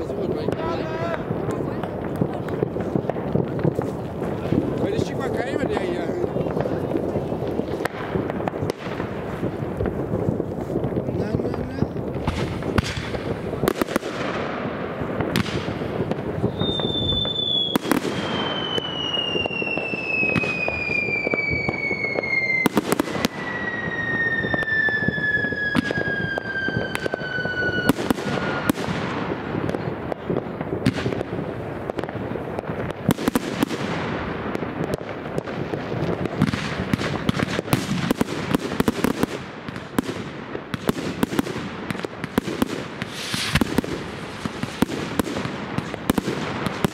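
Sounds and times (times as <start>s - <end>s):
fireworks crackling and banging: 0.0s - 46.9s
falling firework whistle: 16.4s - 29.2s, 43.0s - 46.9s.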